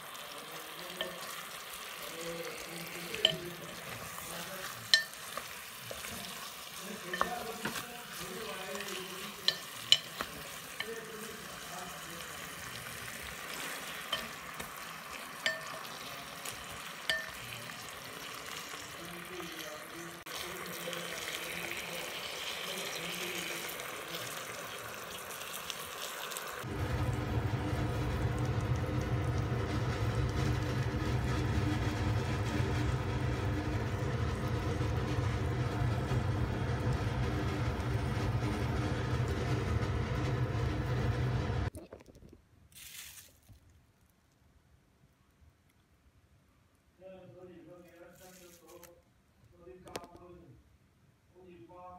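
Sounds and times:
meat sizzling in a pot: 0.0s - 41.7s
chopsticks tapping a pot: 3.1s - 6.1s, 7.0s - 7.9s, 8.8s - 11.0s, 15.4s - 17.5s
low humming drone: 26.6s - 41.7s.

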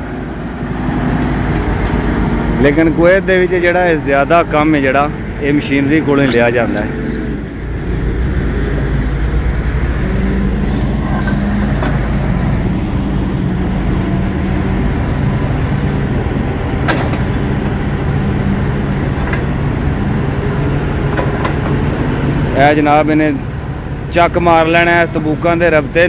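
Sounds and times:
diesel engine running: 0.0s - 26.0s.

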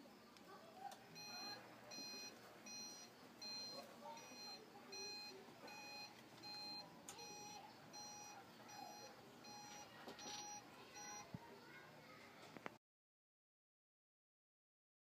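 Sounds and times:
door opener beeping: 1.1s - 11.3s.

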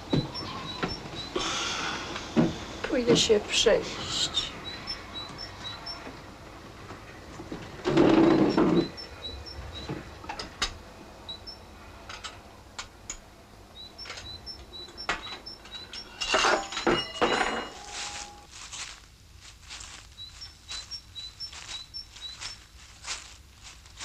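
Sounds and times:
small bird chirping: 0.0s - 1.4s, 3.7s - 6.3s, 8.1s - 10.2s, 11.2s - 11.7s, 13.7s - 17.0s, 20.1s - 22.7s
plates and cutlery clattering: 16.2s - 18.4s.

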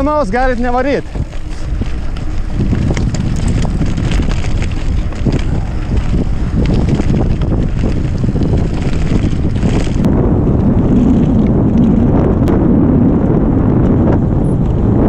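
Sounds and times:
tyres rumbling on road: 0.0s - 15.0s
wind buffeting microphone: 0.0s - 15.0s.

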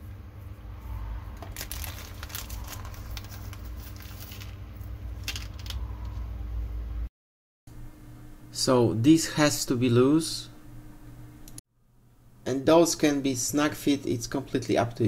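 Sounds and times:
steady low hum: 0.0s - 7.1s, 7.7s - 15.0s
plastic bag crinkling: 1.4s - 5.8s.

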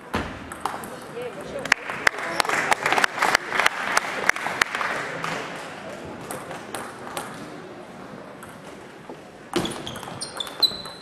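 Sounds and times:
shoes squeaking on floor: 9.6s - 11.0s.

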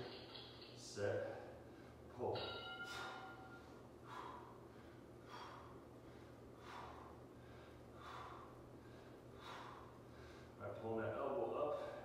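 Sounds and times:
low steady hum: 0.0s - 12.0s
man breathing out sharply: 2.9s - 10.6s.

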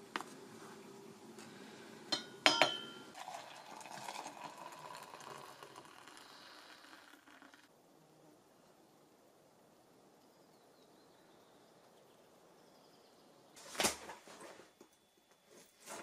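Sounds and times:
soft scraping or rustling: 13.6s - 14.8s, 15.4s - 16.0s.

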